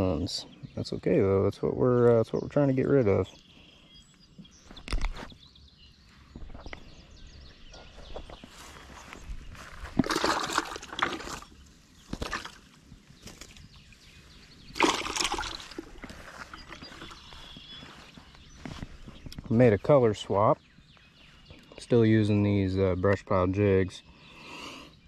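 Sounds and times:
water splashing and sloshing: 9.6 - 12.8, 14.7 - 17.6.

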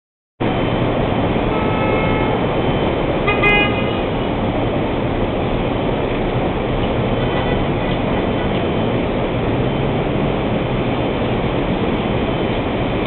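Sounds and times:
traffic engine and road noise: 0.4 - 13.0
car horns honking: 1.4 - 2.6, 3.2 - 4.2.

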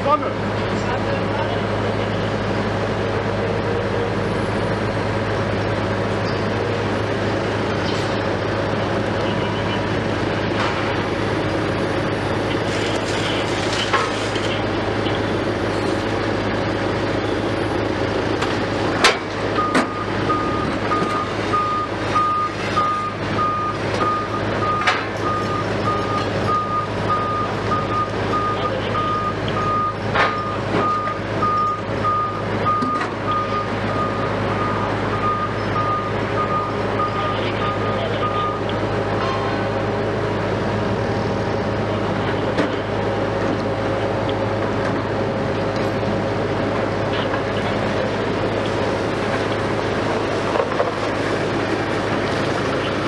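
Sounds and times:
heavy diesel machinery running: 0.0 - 53.0
reversing alarm beeping: 9.2 - 9.9, 19.5 - 39.7.

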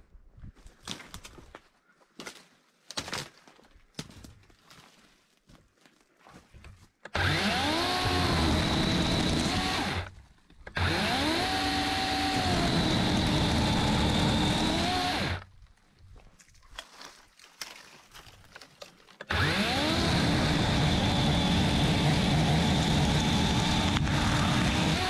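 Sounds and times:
chainsaw cutting limbs: 7.1 - 15.5, 18.5 - 25.0.

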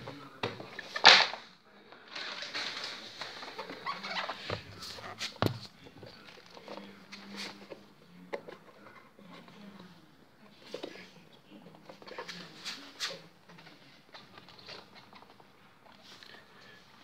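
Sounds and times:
rubber rubbing and rustling: 2.2 - 8.0.

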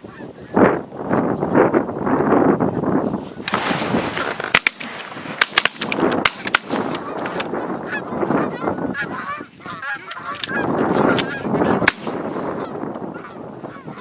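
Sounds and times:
shotgun shots: 4.5 - 7.5, 11.1 - 12.4
geese honking: 6.7 - 14.0.

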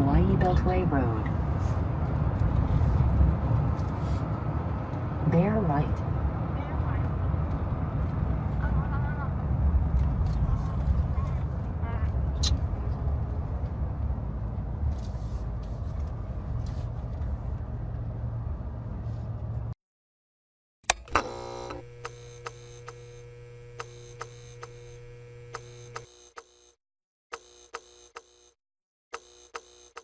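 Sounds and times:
road and engine rumble in car: 0.0 - 19.8
electric hum with tones: 20.9 - 26.7.

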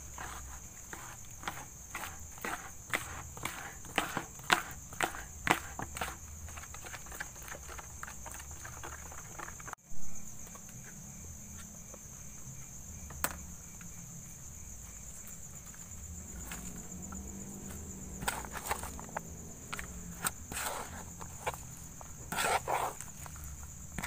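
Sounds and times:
batter mixed in plastic bowl: 0.0 - 9.8, 15.0 - 24.0
insects chirring: 0.0 - 24.0.

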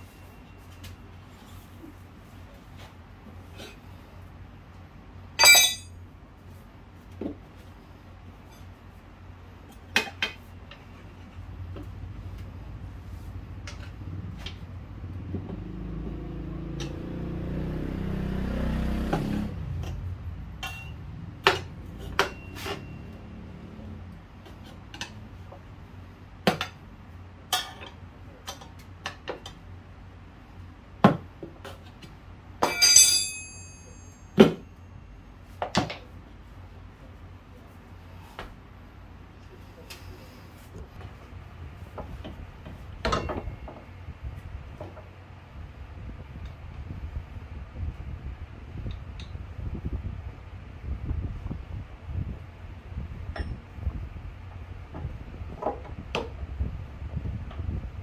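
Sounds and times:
metal tools clinking on wheel: 5.4 - 5.9, 32.6 - 34.6.

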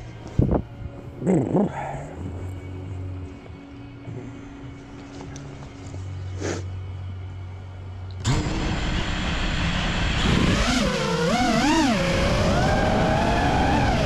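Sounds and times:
drone motors whining: 8.2 - 14.0.

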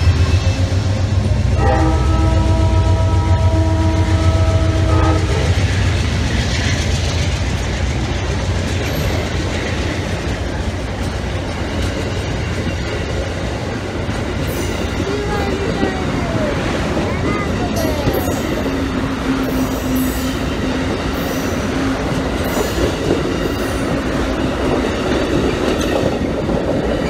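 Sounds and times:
diesel locomotive rumbling past: 0.0 - 27.0
multi-note train horn: 1.5 - 5.6
wheel-on-rail noise: 3.8 - 27.0.

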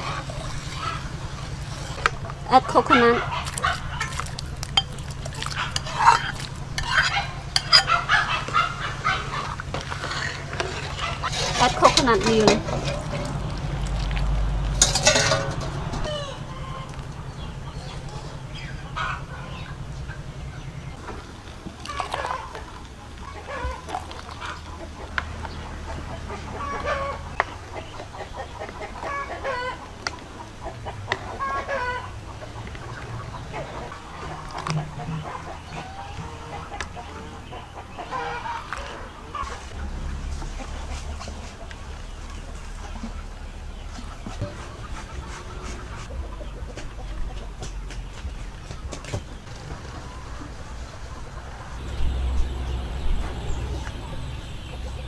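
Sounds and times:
liquid sloshing in pot: 0.0 - 16.0, 21.6 - 24.8
chickens clucking: 0.0 - 55.0
ladle clinking against metal pot: 3.5 - 8.1, 9.8 - 13.4, 14.8 - 16.1
metal ladle clinks: 14.8 - 15.9.

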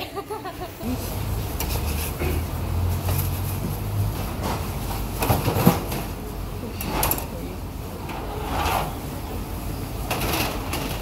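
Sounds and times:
metal baking trays clattering: 4.2 - 7.5, 10.0 - 11.0.

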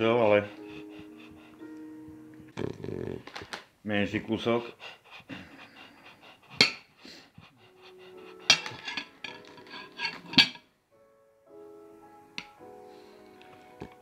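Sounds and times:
background music with held notes: 0.0 - 3.2, 4.2 - 14.0
cutlery scraping on plate: 6.6 - 6.8, 8.5 - 10.6.

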